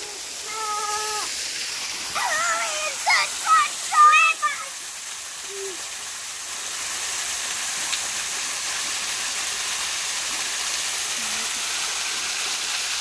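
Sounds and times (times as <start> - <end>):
waterfall splashing: 0.0 - 13.0.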